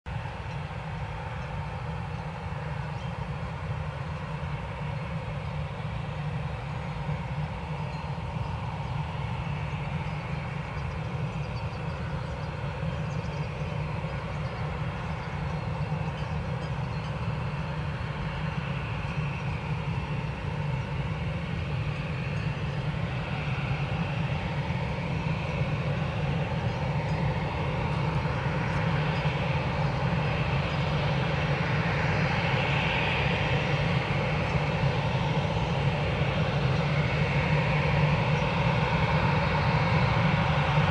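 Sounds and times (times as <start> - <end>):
jet engines whining at taxi power: 0.1 - 40.9.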